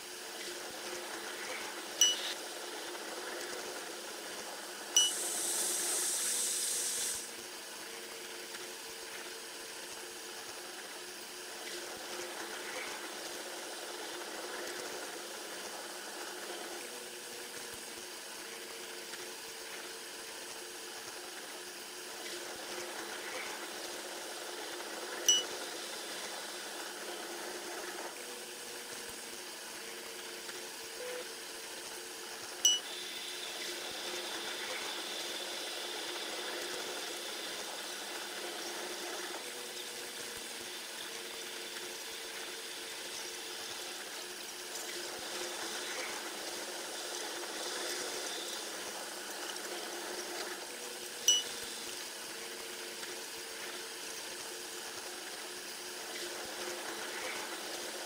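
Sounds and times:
short high beep: 0:02.0 - 0:02.3, 0:05.0 - 0:05.2, 0:32.7 - 0:32.9, 0:51.3 - 0:51.5
sped-up train rushing hiss: 0:05.2 - 0:07.3.

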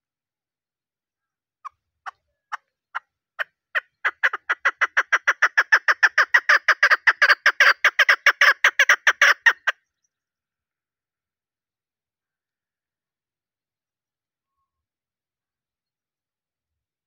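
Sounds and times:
partridge clucking call: 0:03.8 - 0:09.7.

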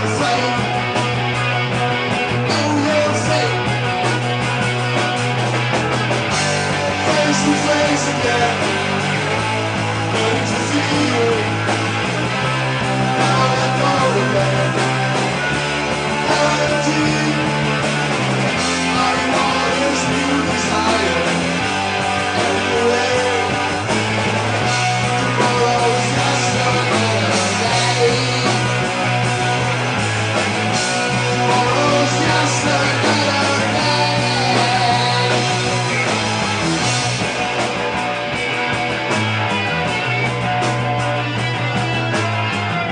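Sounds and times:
bass guitar: 0:00.0 - 0:42.9
drums: 0:00.0 - 0:42.9
electric guitars: 0:00.0 - 0:42.9.

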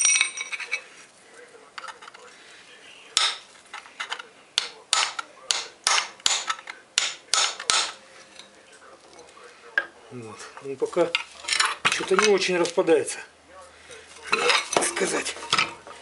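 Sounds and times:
hammer striking chisel on metal: 0:03.2 - 0:03.5, 0:04.6 - 0:08.0.

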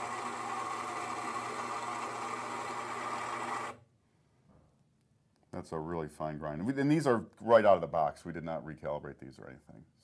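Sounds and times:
coffee grinder grinding beans: 0:00.0 - 0:03.8.

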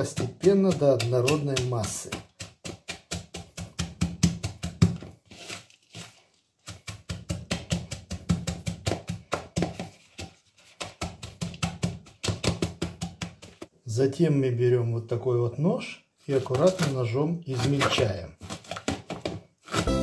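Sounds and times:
wooden pestle pounding in bowl: 0:00.0 - 0:05.2, 0:06.6 - 0:13.7.

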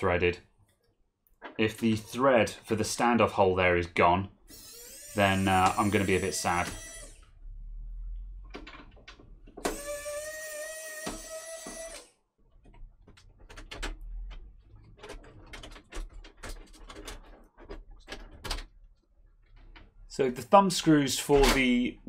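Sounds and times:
electric screwdriver whirring: 0:04.5 - 0:07.2, 0:09.6 - 0:12.1.

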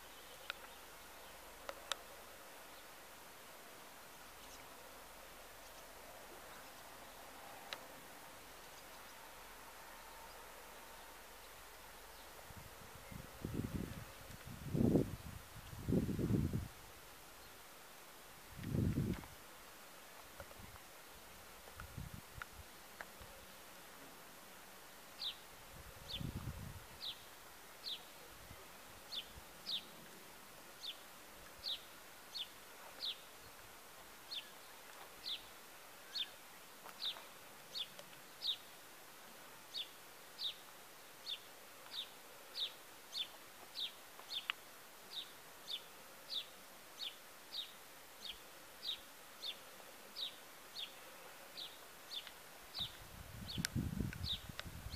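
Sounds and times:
bird chirping: 0:00.0 - 0:01.5, 0:27.0 - 0:30.0, 0:31.6 - 0:33.3, 0:34.3 - 0:36.4, 0:37.0 - 0:38.7, 0:39.7 - 0:40.6, 0:41.2 - 0:49.6, 0:50.2 - 0:54.9.

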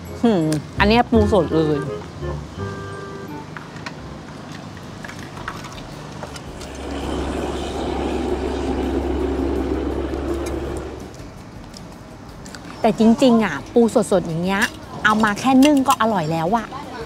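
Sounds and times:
motor engine passing: 0:05.7 - 0:11.3.

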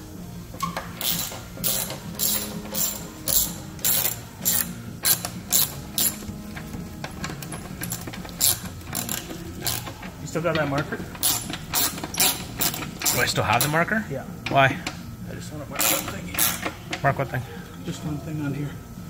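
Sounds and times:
ratchet wrench clicking: 0:00.6 - 0:13.8, 0:15.8 - 0:16.8.

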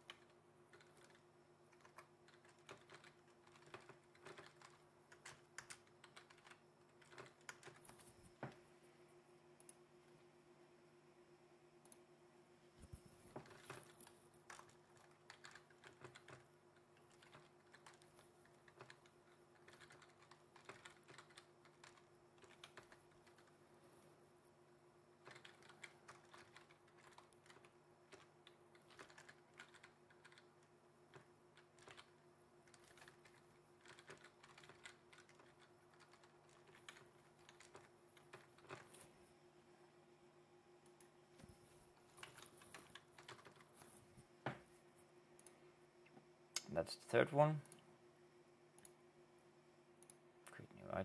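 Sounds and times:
typing on keyboard: 0:00.0 - 0:08.5, 0:12.9 - 0:23.6, 0:25.2 - 0:39.1, 0:42.0 - 0:43.9
faint steady hum: 0:00.0 - 0:51.0.

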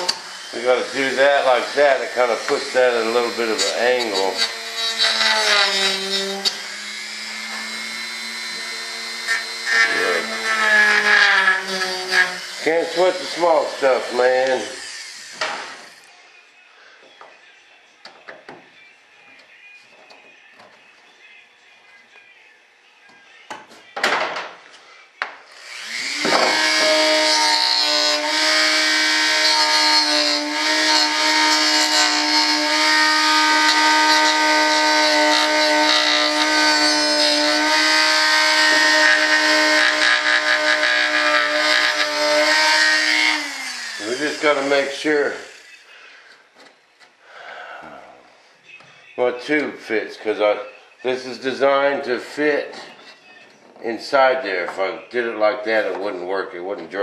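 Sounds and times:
rotary tool whining: 0:00.0 - 0:16.1, 0:25.5 - 0:45.8.

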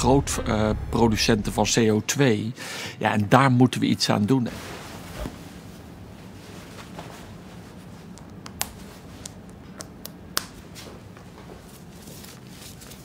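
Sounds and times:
low room hum: 0:00.0 - 0:13.0
cloth rustling: 0:04.5 - 0:08.2.

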